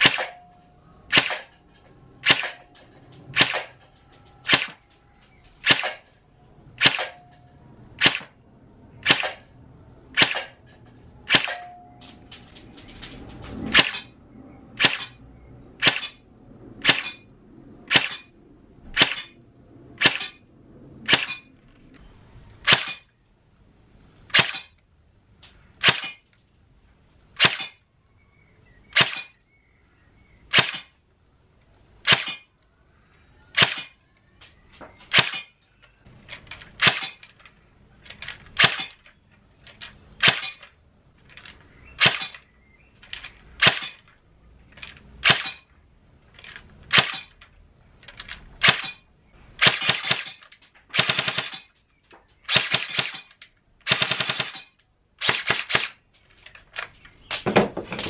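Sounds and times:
airsoft gun single shots: 0:00.0 - 0:00.4, 0:01.1 - 0:01.5, 0:03.4 - 0:03.7, 0:06.8 - 0:07.2, 0:11.3 - 0:11.6.

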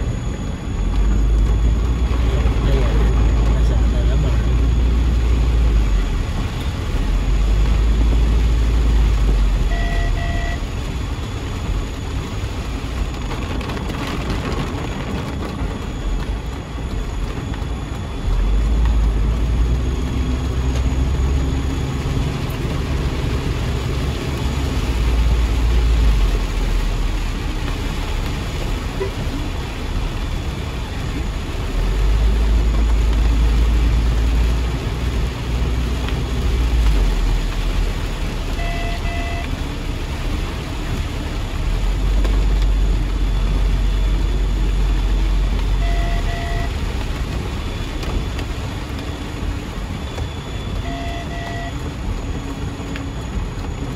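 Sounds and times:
engine and wet road rumble: 0:00.0 - 0:53.9
heavy rain on car roof: 0:00.0 - 0:53.9
short beeps: 0:09.6 - 0:10.6, 0:38.6 - 0:39.5, 0:45.8 - 0:46.8, 0:50.4 - 0:51.9.

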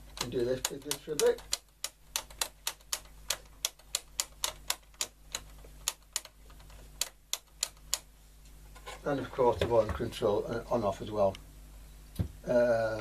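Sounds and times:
radio pushbuttons clicking: 0:00.1 - 0:08.1.

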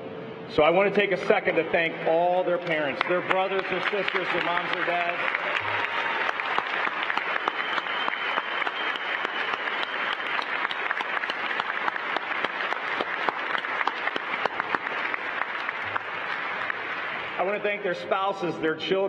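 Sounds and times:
audience applauding: 0:02.5 - 0:17.9
sharp individual claps: 0:02.6 - 0:17.4.

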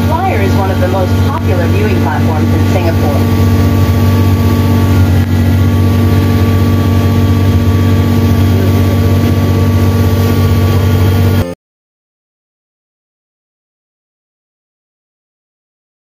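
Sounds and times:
vehicle engine running: 0:00.0 - 0:11.6.

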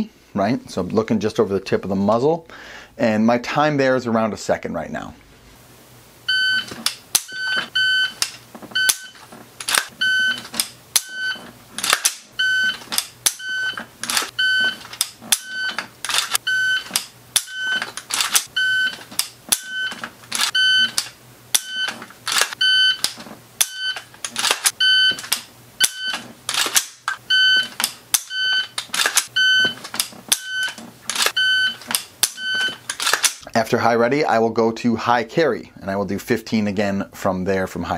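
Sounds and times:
shot timer beeping: 0:06.3 - 0:08.2, 0:08.8 - 0:09.2, 0:12.4 - 0:15.8, 0:16.4 - 0:17.8, 0:18.6 - 0:22.0, 0:25.8 - 0:26.2, 0:27.1 - 0:32.8.

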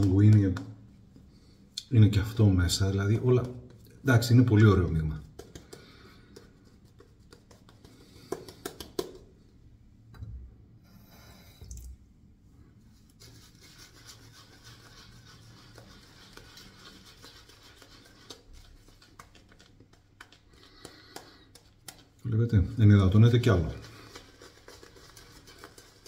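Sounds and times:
shaving brush rubbing lather: 0:13.0 - 0:26.0.

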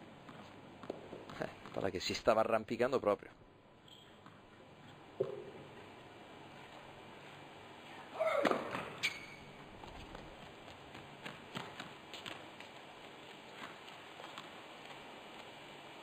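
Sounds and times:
tennis ball bouncing: 0:00.2 - 0:01.9, 0:04.2 - 0:05.8
shoe squeal: 0:08.2 - 0:09.6.

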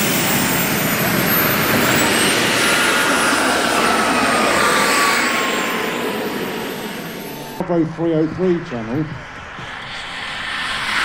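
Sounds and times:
model jet turbine engine whine: 0:00.0 - 0:11.0.

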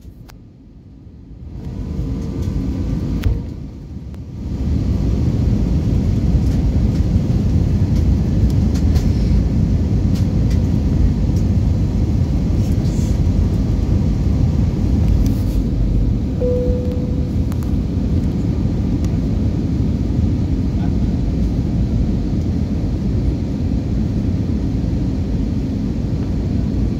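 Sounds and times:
aircraft engine noise: 0:00.0 - 0:26.9
airflow rush in cabin: 0:00.0 - 0:26.9.

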